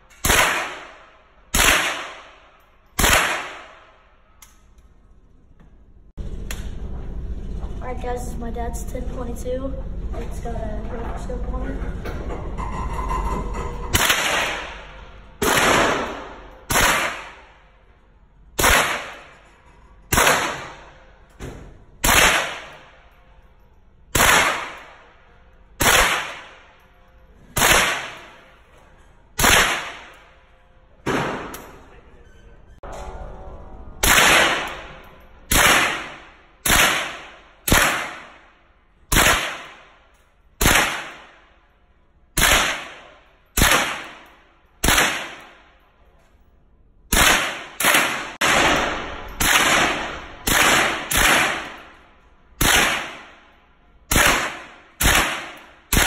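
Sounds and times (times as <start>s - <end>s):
rifle gunshots echoing indoors: 0.1s - 4.6s, 13.9s - 28.6s, 29.4s - 31.9s, 34.0s - 45.9s, 47.0s - 56.0s.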